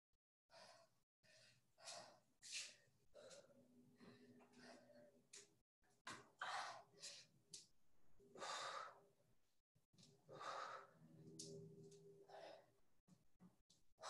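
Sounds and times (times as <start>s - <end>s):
person breathing hard: 0.5s - 5.3s, 8.3s - 9.2s, 10.3s - 11.5s, 12.2s - 12.8s.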